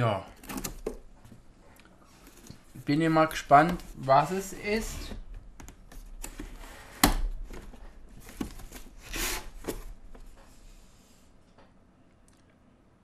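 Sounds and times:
cardboard tearing and rustling: 6.2 - 9.8.

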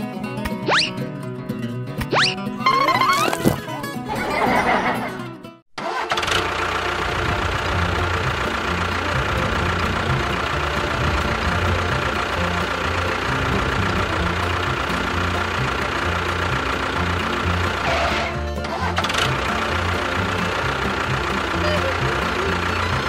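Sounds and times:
tractor engine chugging: 5.8 - 23.0.

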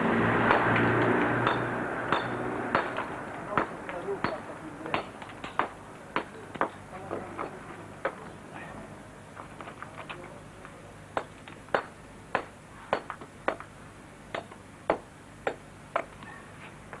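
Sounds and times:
hammer striking stone: 0.5 - 6.8, 11.2 - 13.7, 14.3 - 16.1.

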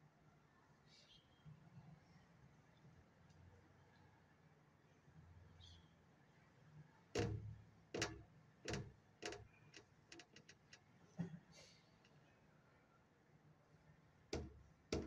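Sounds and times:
knocks and clicks: 7.2 - 9.4, 14.4 - 15.0.

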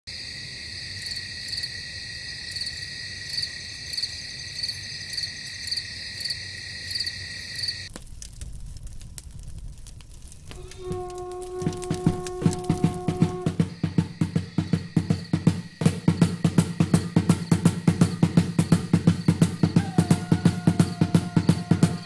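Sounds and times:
loud pulsing insect call: 0.1 - 7.9, 10.5 - 22.0
night insects trilling: 0.1 - 7.9, 10.4 - 22.0
faint clicks and crackles: 7.9 - 13.4.

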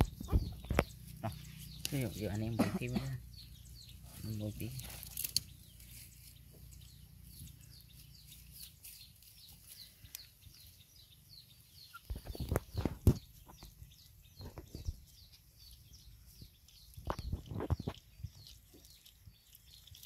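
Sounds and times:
puppies eating from a bowl: 15.6 - 20.0.

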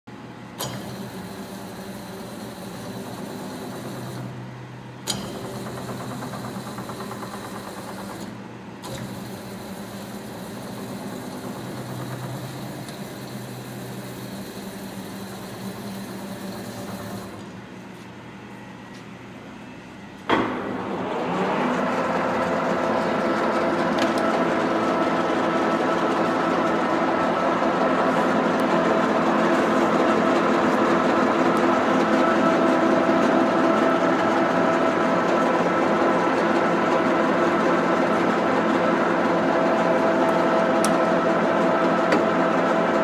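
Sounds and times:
sharp clunk: 20.3 - 20.7.

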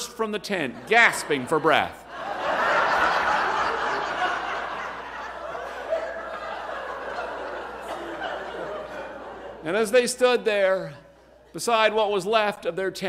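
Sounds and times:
audience laughing: 0.4 - 10.2.

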